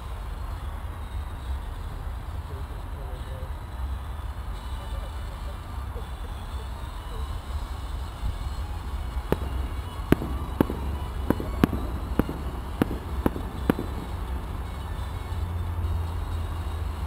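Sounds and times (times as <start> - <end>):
distant fireworks pops: 7.2 - 17.0
steady low rumble: 7.4 - 17.0.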